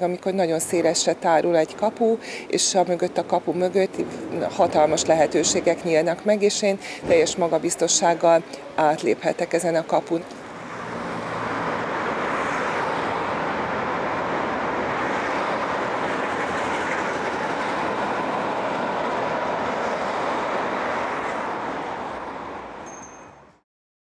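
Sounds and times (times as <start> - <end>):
city street traffic: 0.0 - 23.6
tram running on rails: 0.0 - 23.6.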